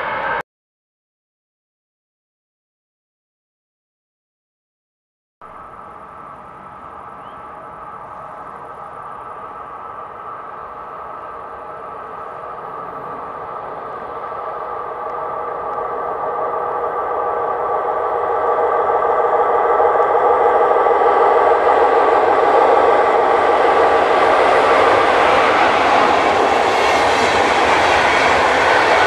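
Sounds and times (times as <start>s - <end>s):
train running on rails: 0.0s - 0.4s, 5.4s - 29.0s
multi-tone electric whine: 5.4s - 18.6s.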